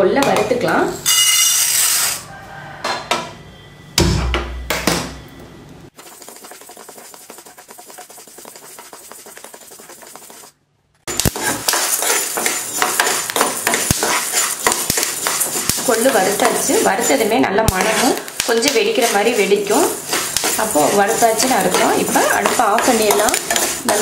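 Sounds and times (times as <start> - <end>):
seeds rattling in metal pan: 6.0 - 10.5, 11.1 - 24.0
metal spatula scraping: 6.0 - 24.0.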